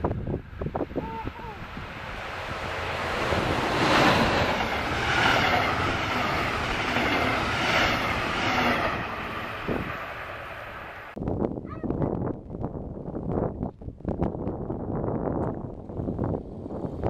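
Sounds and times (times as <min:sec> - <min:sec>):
train passing on rails: 0:00.0 - 0:11.2.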